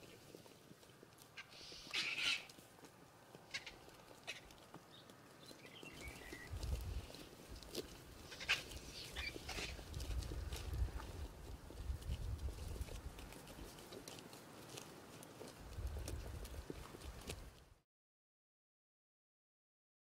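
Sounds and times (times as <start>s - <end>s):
vultures calling: 1.4s - 2.5s, 3.4s - 5.0s, 8.2s - 9.8s.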